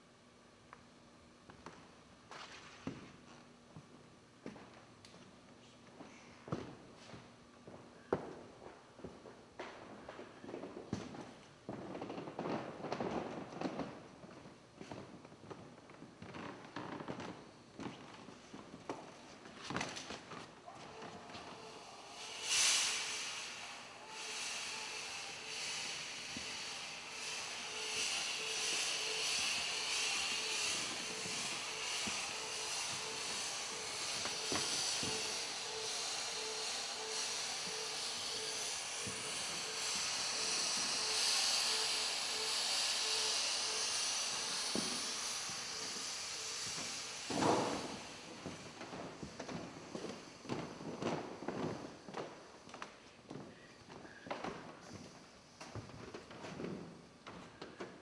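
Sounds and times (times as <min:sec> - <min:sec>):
fog machine hissing: 0:16.2 - 0:58.0
faint pulsing tone: 0:24.0 - 0:47.2.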